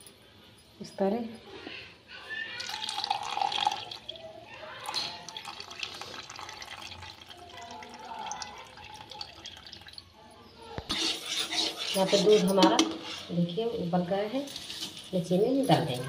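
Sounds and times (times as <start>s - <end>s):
water trickling into a jug: 2.5s - 10.3s.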